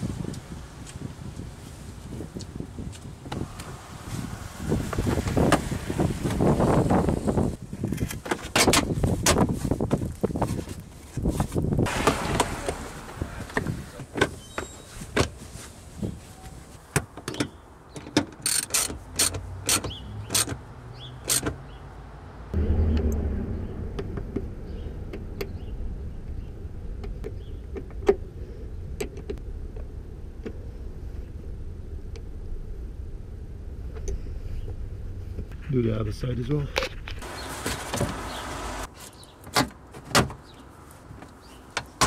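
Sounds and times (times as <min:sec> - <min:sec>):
low rumble: 0:22.4 - 0:35.6.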